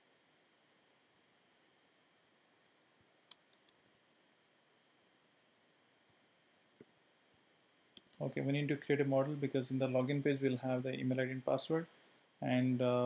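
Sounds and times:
faint room hiss: 0.0s - 13.0s
keyboard and mouse clicks: 2.6s - 3.8s, 7.8s - 8.2s.

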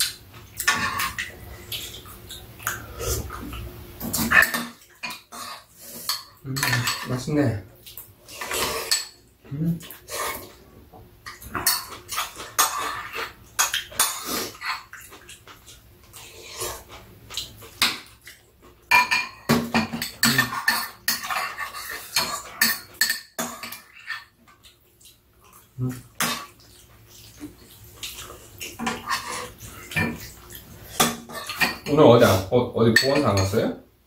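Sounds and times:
spoons clinking on bowls: 32.9s - 33.6s.

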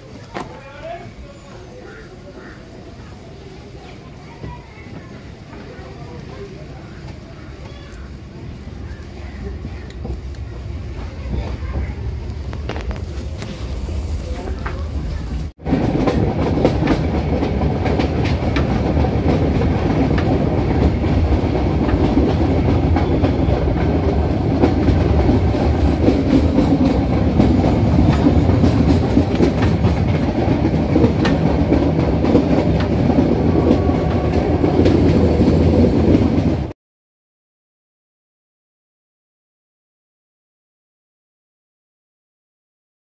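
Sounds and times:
train wheels rumbling on rails: 0.0s - 36.8s
clickety-clack of rail joints: 4.3s - 36.7s.

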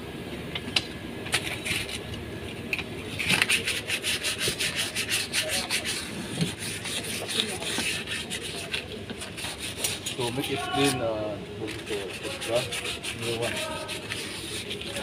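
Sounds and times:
hand scrubbing metal hub: 3.0s - 15.0s
quick back-and-forth scraping rub: 3.1s - 11.0s, 11.7s - 15.0s.

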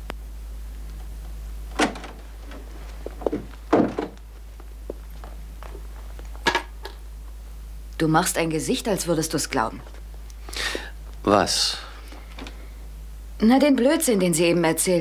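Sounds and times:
door knocks and thuds: 1.8s - 2.2s, 3.2s - 4.2s.

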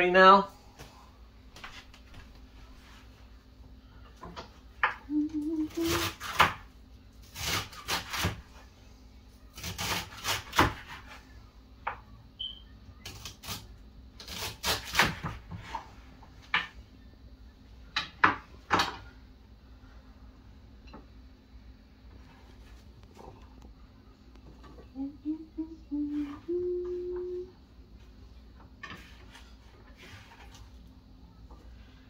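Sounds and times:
knife chopping on cutting board: 9.6s - 11.0s.

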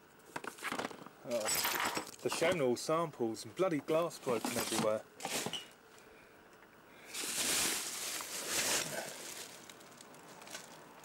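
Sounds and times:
rustling and scraping of cases: 0.2s - 2.6s, 4.1s - 6.0s, 7.1s - 10.9s.

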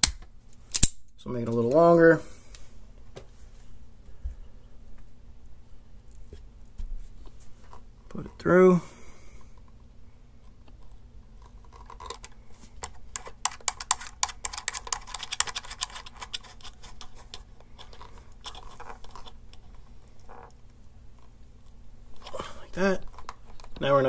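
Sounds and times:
plastic cap clicks and scratches: 10.7s - 19.7s.

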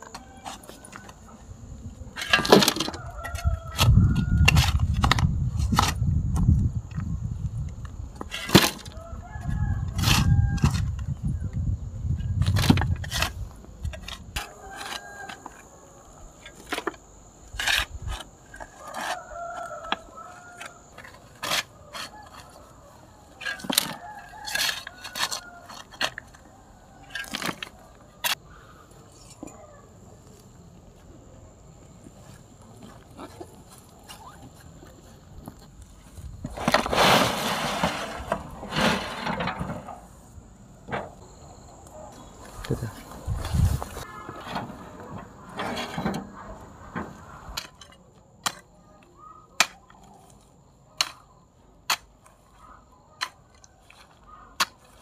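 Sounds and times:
rooster crowing: 2.7s - 4.7s, 8.9s - 10.9s, 14.4s - 16.3s, 18.8s - 20.9s, 21.8s - 28.0s.

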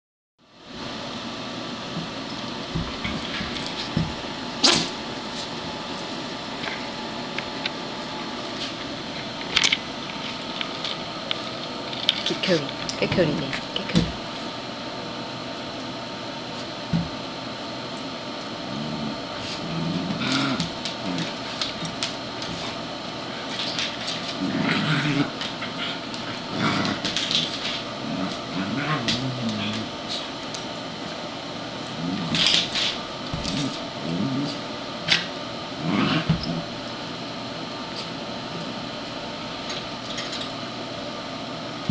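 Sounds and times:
dogs scuffling: 2.2s - 6.9s, 19.4s - 24.7s
dogs growling: 18.6s - 30.6s, 31.8s - 36.9s.

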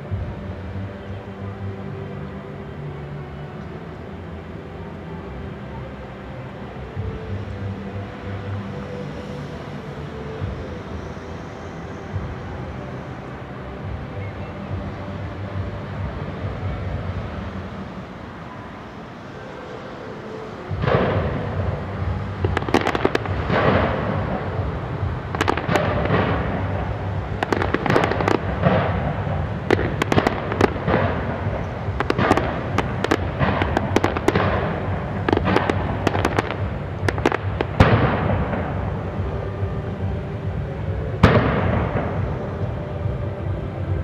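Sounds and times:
fireworks bangs and crackles: 20.7s - 44.0s.

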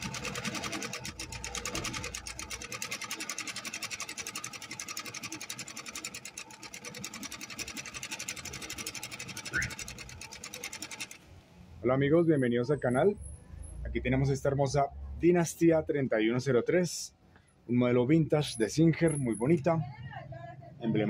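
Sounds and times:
sewing machine stitching: 0.0s - 11.3s.

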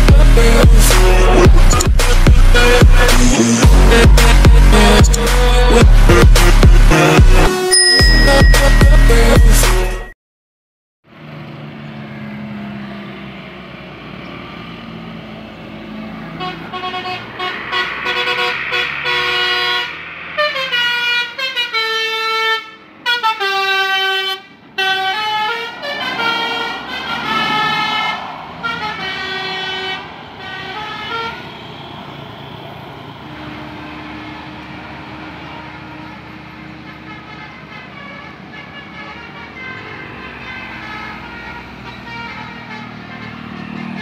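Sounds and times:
bus engine running: 0.0s - 9.9s, 11.1s - 44.0s
musical bus horn playing a tune: 16.2s - 44.0s.

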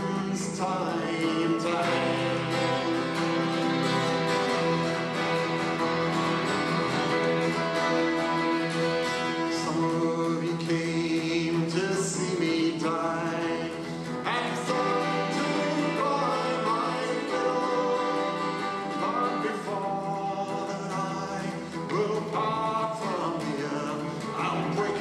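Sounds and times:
man singing: 0.0s - 3.2s, 9.2s - 25.0s
acoustic folk band playing: 0.0s - 25.0s.

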